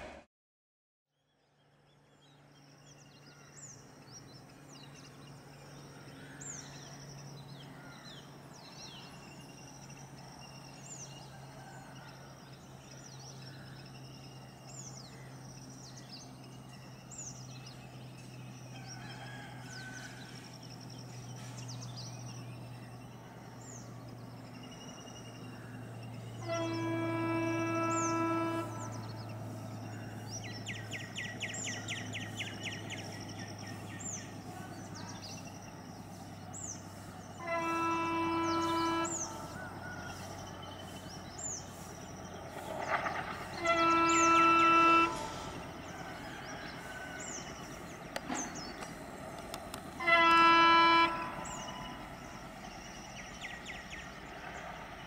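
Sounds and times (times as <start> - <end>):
birds chirping: 1.4 - 55.0
locomotive horn blast: 25.9 - 33.6, 37.0 - 48.9, 49.7 - 53.9.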